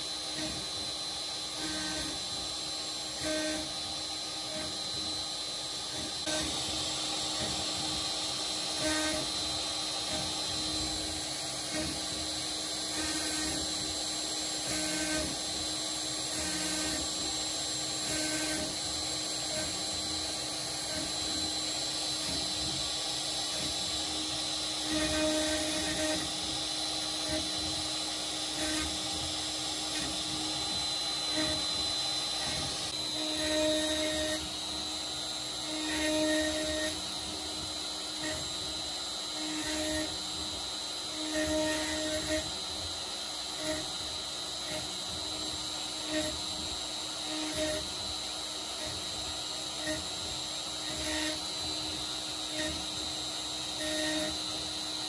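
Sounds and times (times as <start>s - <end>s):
router spindle whine carving wood: 0.0s - 55.0s.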